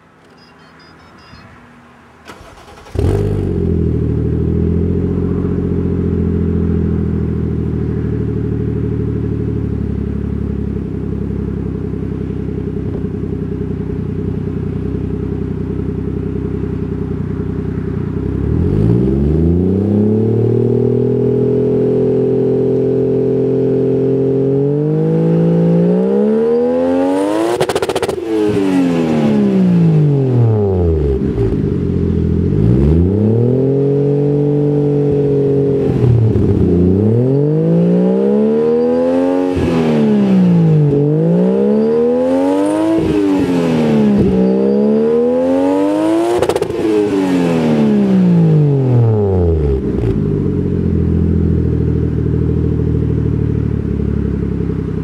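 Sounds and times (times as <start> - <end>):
car engine starting and revving: 2.0 - 55.0.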